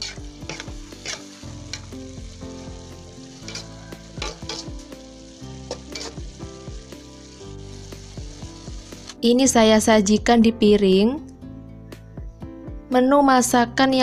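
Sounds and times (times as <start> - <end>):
metal spatula scraping wok: 0.0 - 2.4, 3.2 - 6.4
food sizzling: 0.0 - 10.2.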